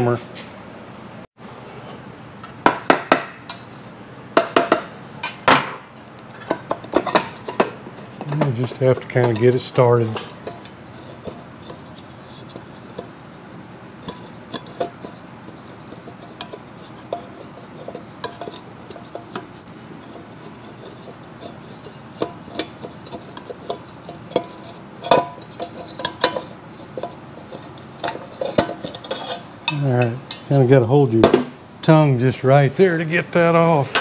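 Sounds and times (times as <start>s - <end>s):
metal engine cover clinking: 4.4s - 30.6s.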